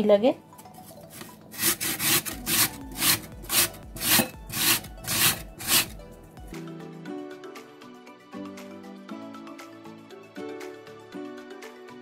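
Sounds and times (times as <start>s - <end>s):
potato rasping on metal grater: 1.6s - 6.0s.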